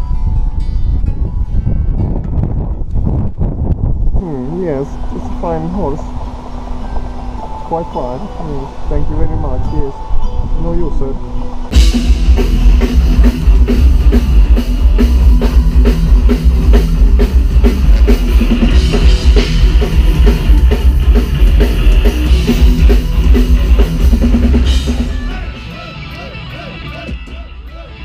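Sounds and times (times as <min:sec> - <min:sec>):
loud metal music: 0:11.7 - 0:28.0
pounding drum kit: 0:11.7 - 0:28.0.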